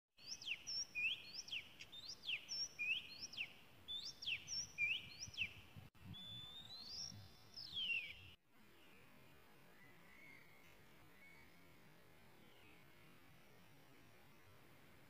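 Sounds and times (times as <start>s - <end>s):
bird whistling song: 0.2s - 8.4s, 9.8s - 10.6s.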